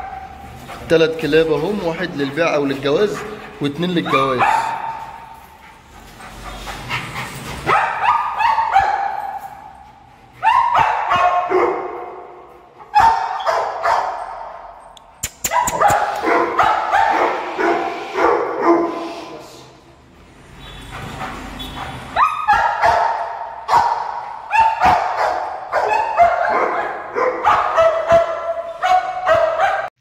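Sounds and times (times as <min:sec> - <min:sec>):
dogs whining and yelping: 0:12.9 - 0:17.8, 0:24.4 - 0:29.6.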